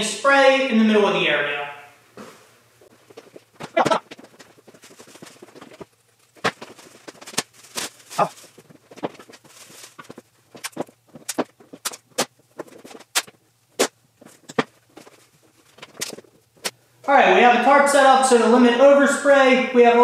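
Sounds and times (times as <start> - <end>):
plastic sheeting crinkling: 2.9 - 16.7
masking tape ripping: 6.4 - 13.9.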